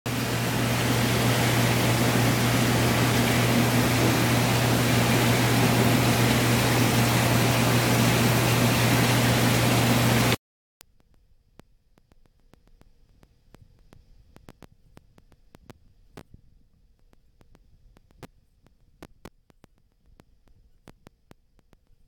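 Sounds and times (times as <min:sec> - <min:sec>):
low electrical hum: 0:00.1 - 0:10.4
rushing water hiss: 0:00.1 - 0:10.4.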